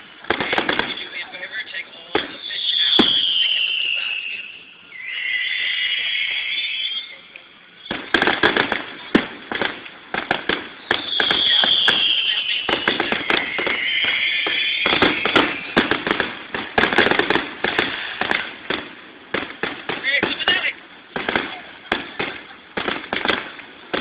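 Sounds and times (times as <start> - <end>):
fireworks crackling and banging: 0.0 - 24.0
falling firework whistle: 2.2 - 8.7, 10.4 - 18.5.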